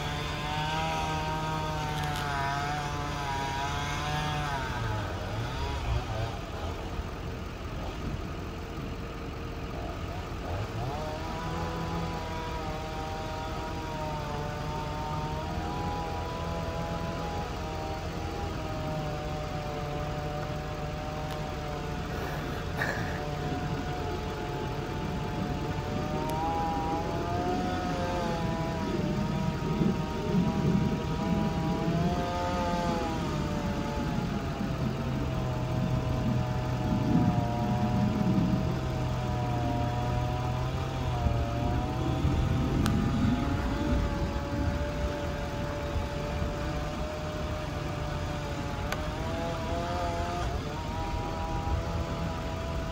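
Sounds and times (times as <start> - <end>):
engine running wavering pitch: 0.0 - 52.9
low steady hum: 0.0 - 52.9.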